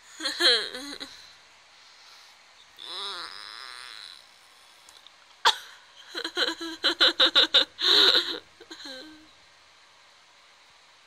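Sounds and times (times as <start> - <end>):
person laughing: 5.5 - 9.2.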